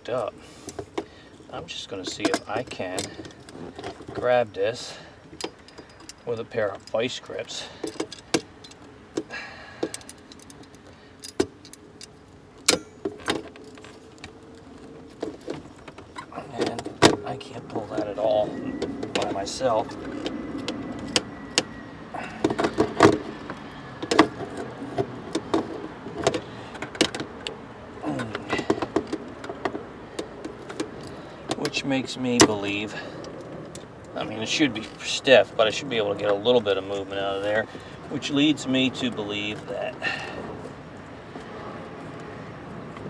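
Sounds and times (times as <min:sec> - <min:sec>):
locking pliers clanking on metal: 0:02.0 - 0:04.0, 0:09.8 - 0:13.4.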